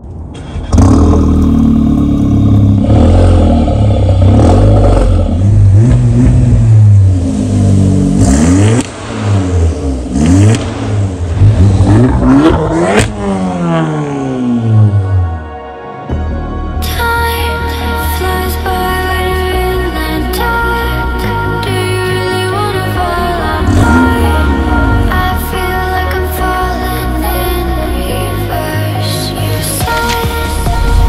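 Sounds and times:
exhaust cracks: 0:00.0 - 0:15.1
car engine revving: 0:00.4 - 0:15.5, 0:17.7 - 0:31.0.

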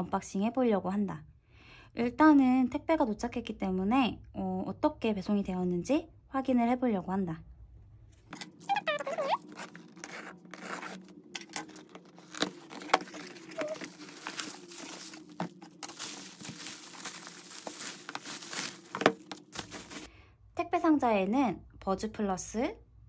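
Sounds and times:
bubble wrap crinkling: 0:08.6 - 0:20.1
knife slitting packing tape: 0:09.0 - 0:15.9
sharp clicks and scrapes: 0:09.4 - 0:13.7.

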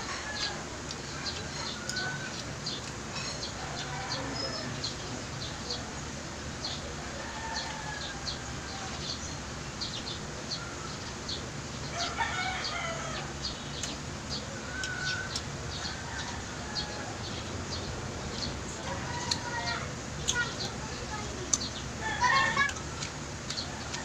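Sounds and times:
rooster crowing: 0:00.0 - 0:02.4, 0:03.6 - 0:04.9, 0:07.0 - 0:09.1, 0:11.9 - 0:13.4, 0:14.6 - 0:17.4, 0:18.8 - 0:19.9, 0:22.0 - 0:22.8
low background noise: 0:00.0 - 0:24.0.

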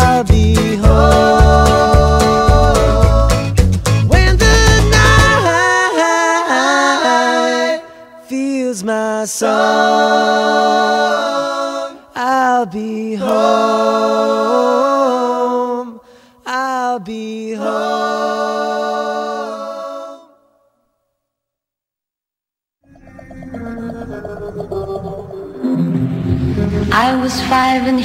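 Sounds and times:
voices singing in harmony: 0:00.0 - 0:20.6.

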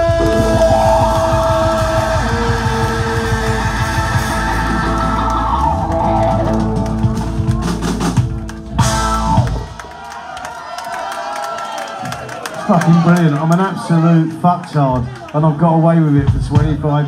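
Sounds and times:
trumpet holding high notes: 0:00.0 - 0:06.6
electric guitar: 0:00.0 - 0:09.8
bass guitar: 0:00.0 - 0:09.9
drums: 0:00.0 - 0:10.6, 0:15.0 - 0:17.0.

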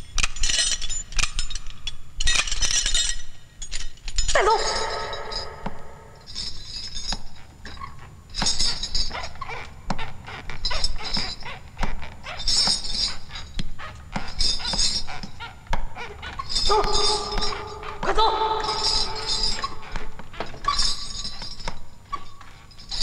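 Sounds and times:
chains and handcuffs clinking: 0:00.0 - 0:23.0
whimpering cry: 0:04.3 - 0:06.2, 0:15.4 - 0:21.0.

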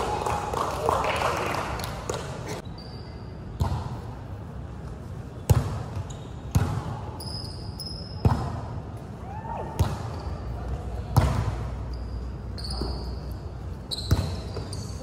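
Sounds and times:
volleyball hits echoing: 0:09.6 - 0:11.8.

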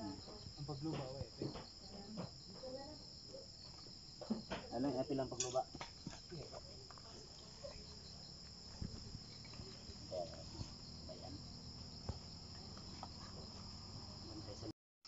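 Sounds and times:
high-pitched insects chirring: 0:00.0 - 0:14.7
faint knocks and shuffles: 0:00.2 - 0:03.0, 0:05.6 - 0:13.9.

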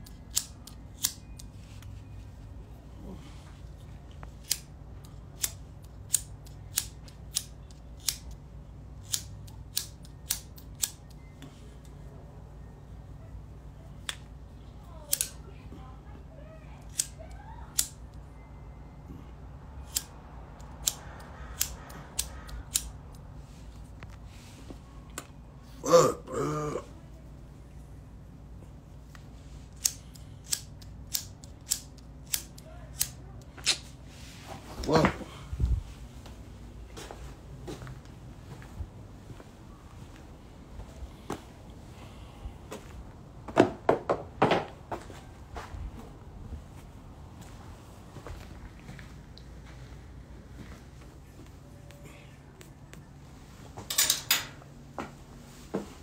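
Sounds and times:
lighter flint wheel clicking: 0:00.0 - 0:01.5, 0:04.4 - 0:08.4, 0:09.0 - 0:11.2, 0:15.1 - 0:15.4, 0:29.7 - 0:33.2.

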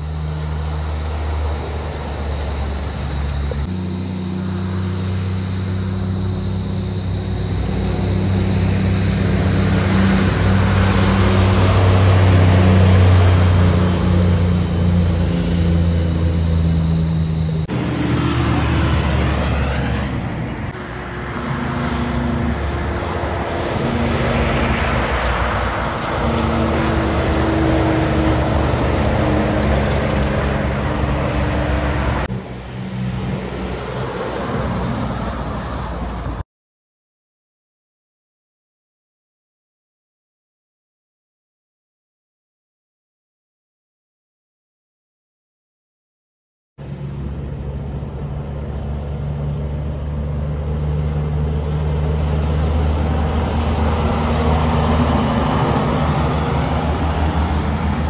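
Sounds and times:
diesel trucks passing: 0:00.0 - 0:36.4, 0:46.8 - 0:58.0.

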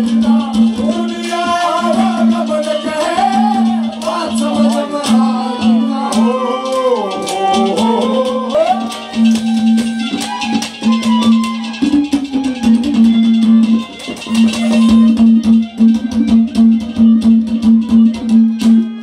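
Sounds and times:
fast busy drumming: 0:00.0 - 0:19.0
held melody note: 0:05.2 - 0:18.0.

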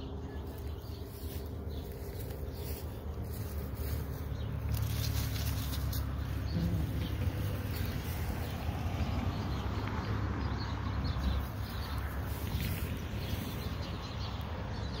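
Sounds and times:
footsteps rustling through grass: 0:00.4 - 0:06.4, 0:11.6 - 0:14.0.

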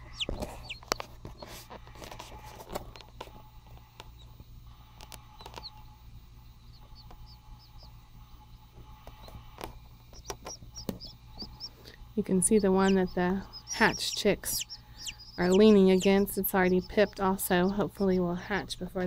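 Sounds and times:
chicks peeping: 0:00.0 - 0:03.1, 0:05.0 - 0:05.9, 0:06.7 - 0:08.0, 0:08.8 - 0:18.4
low steady hum: 0:00.0 - 0:19.0.

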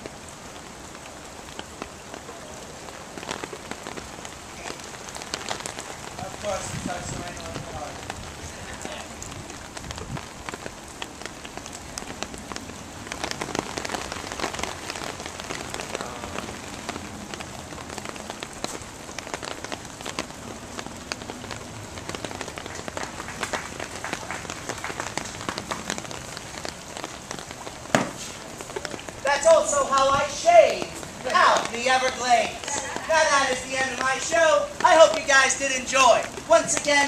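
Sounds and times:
rain falling: 0:00.0 - 0:37.0
raindrops ticking on surfaces: 0:00.0 - 0:37.0.

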